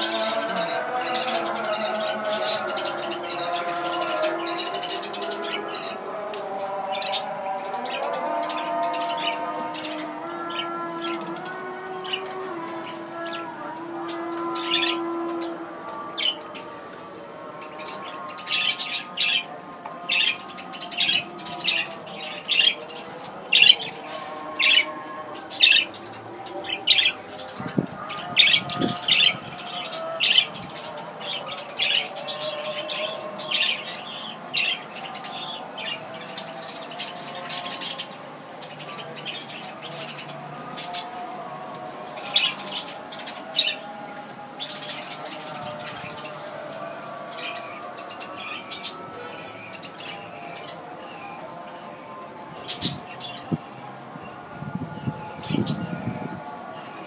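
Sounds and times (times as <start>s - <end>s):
budgerigars warbling: 14.4s - 15.6s, 20.1s - 41.1s.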